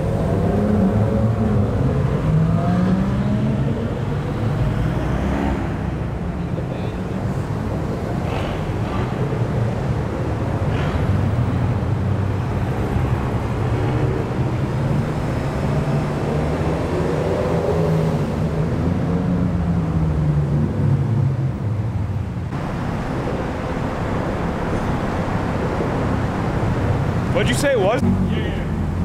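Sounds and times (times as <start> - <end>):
sports cars driving past: 0.0 - 29.0.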